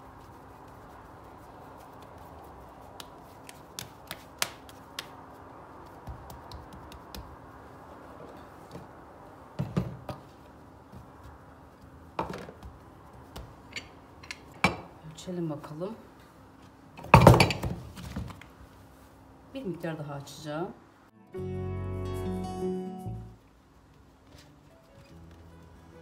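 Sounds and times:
hands tapping dough on stone: 1.9 - 7.5, 10.9 - 13.7
dough thudding on counter: 5.8 - 7.4.

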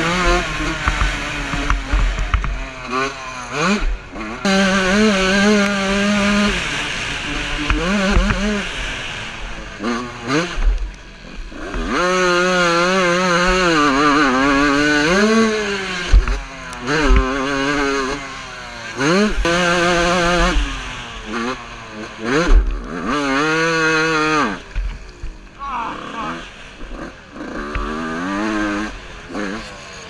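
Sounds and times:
motorbike engine revving: 0.0 - 30.0.

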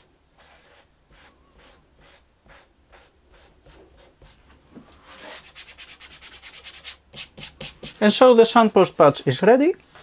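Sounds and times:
cotton wad rubbing on wood: 5.2 - 8.8.

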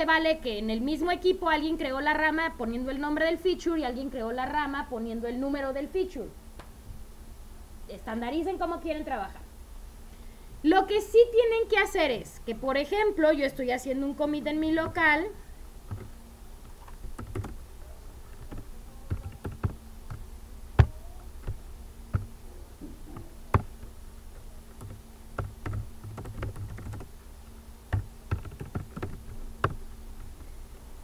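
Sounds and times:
typing on computer keyboard: 15.9 - 16.1, 16.7 - 17.6, 18.3 - 20.2, 24.7 - 27.1, 27.9 - 29.8.

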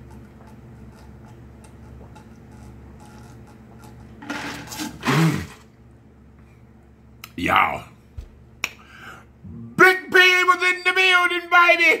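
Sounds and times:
breathy exhale: 8.8 - 9.3.

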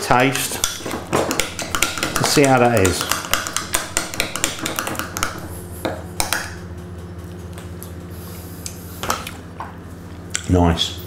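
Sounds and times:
spoon tapping bowl: 0.3 - 7.0.

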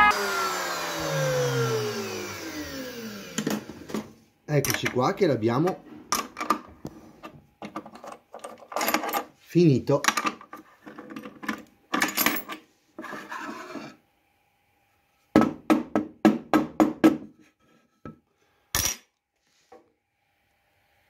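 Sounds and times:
scraping and brushing on wood: 12.9 - 14.0
knocks on wood: 15.4 - 17.3.

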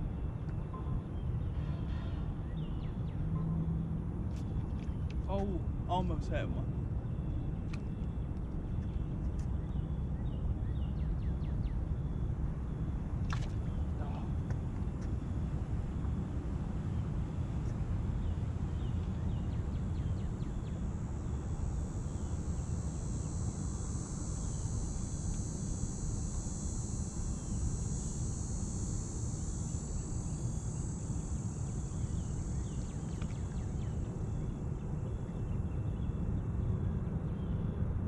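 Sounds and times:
high insect buzz: 19.6 - 36.1.

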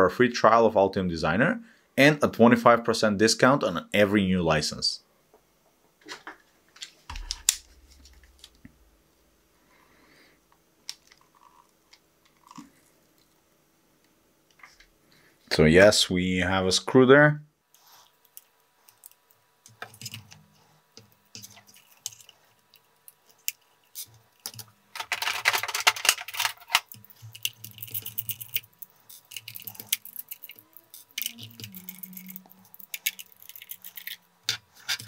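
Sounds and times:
screwdriver clicking and scraping: 23.4 - 35.0
scraping and rattling: 23.9 - 35.0.

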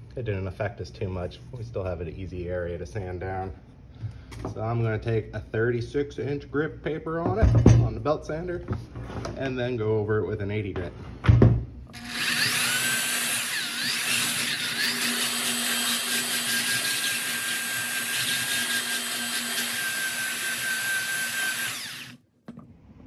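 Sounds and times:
belt sander sanding wood: 12.0 - 22.2.

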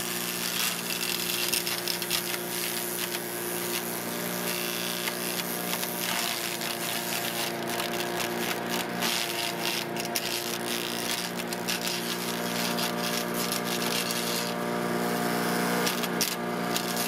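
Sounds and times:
chipper shredder running: 0.0 - 17.0
yard waste crackling and rattling: 5.0 - 14.6.

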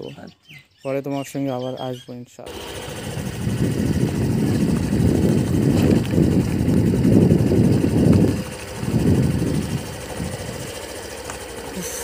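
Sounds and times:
motorcycle engine rumble: 2.4 - 12.0.

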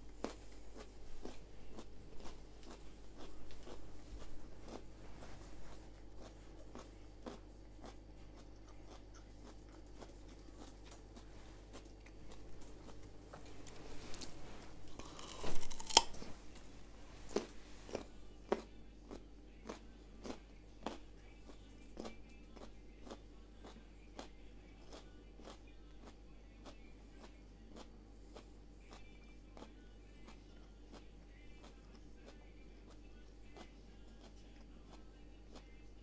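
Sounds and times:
carrot crunching: 0.0 - 21.0
sharp snapping bite: 15.0 - 16.2.

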